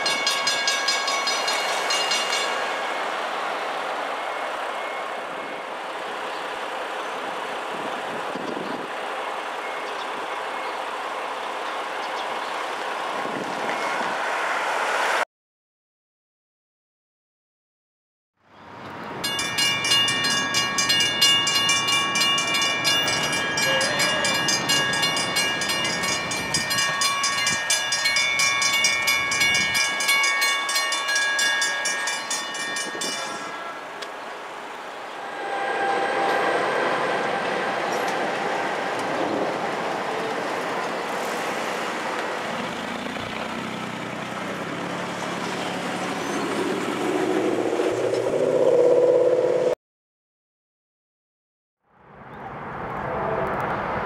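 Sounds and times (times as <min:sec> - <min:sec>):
crossing bell ringing: 0:00.0 - 0:06.9, 0:13.7 - 0:14.2, 0:18.8 - 0:34.4, 0:35.2 - 0:39.3
train rumbling over crossing: 0:00.0 - 0:15.2, 0:18.7 - 0:49.8.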